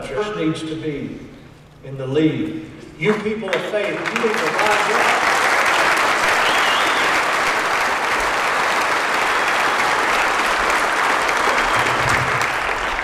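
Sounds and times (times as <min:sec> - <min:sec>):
audience applauding: 0:03.1 - 0:13.0.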